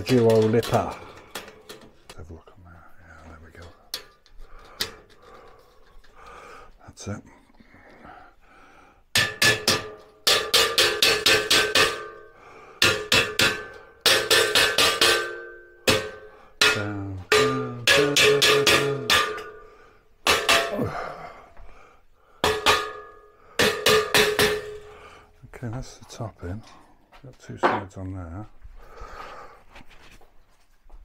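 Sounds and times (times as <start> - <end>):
mallet striking steel: 9.1 - 21.1, 22.4 - 24.9
steel frame ringing: 9.2 - 21.1, 22.4 - 25.0.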